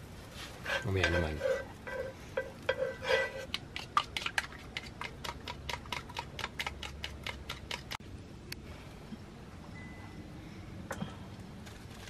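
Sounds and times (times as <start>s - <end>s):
wooden utensil beating eggs in bowl: 0.6s - 8.0s.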